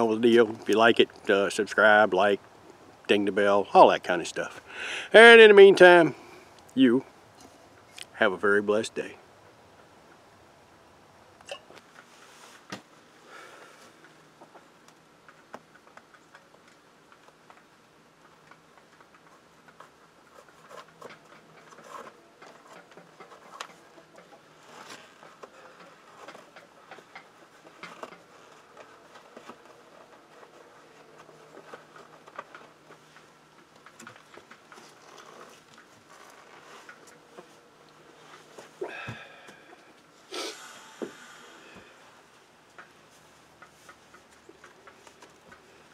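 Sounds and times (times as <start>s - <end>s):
bootlaces rustling and clicking: 18.3s - 40.3s.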